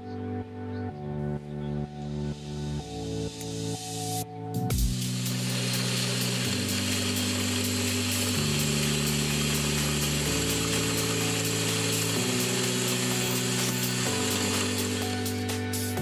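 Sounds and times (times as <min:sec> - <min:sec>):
background music: 0:00.0 - 0:16.0
small drill whirring: 0:04.7 - 0:16.0.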